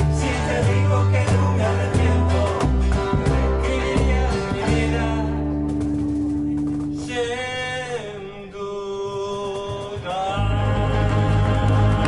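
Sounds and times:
classical guitar: 0.0 - 8.1
double bass: 0.0 - 8.1, 10.4 - 12.0.

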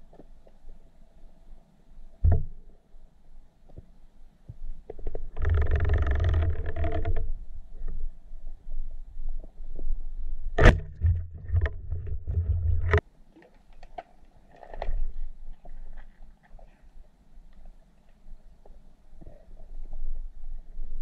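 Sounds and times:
low underwater rumbling: 5.0 - 13.0
sharp underwater knocks: 10.6 - 13.0.

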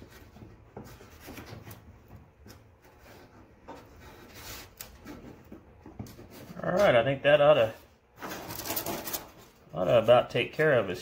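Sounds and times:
cardboard scraping on metal: 8.2 - 9.6.

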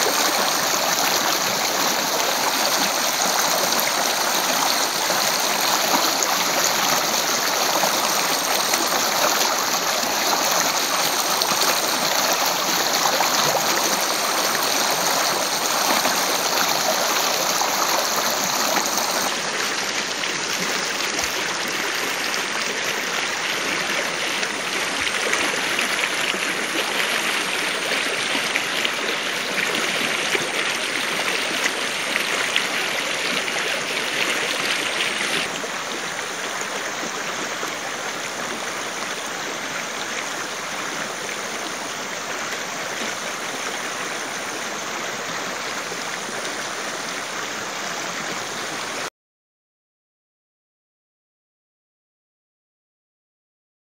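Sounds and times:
stream splashing over rocks: 0.0 - 49.1.

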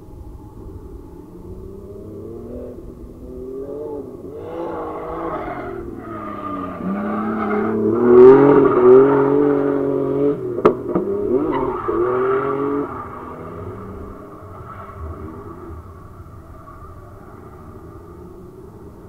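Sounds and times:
car engine revving: 1.2 - 19.0
tyre squeal: 11.3 - 15.8.

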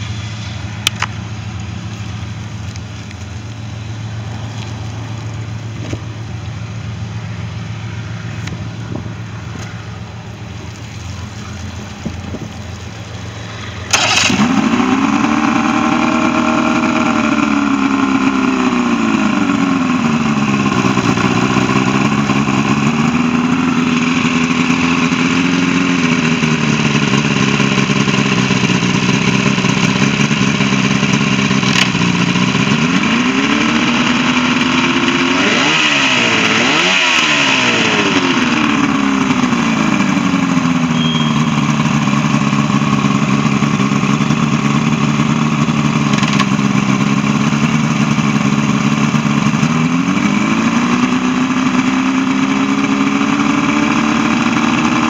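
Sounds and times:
outboard motor idling and revving: 0.0 - 55.0.

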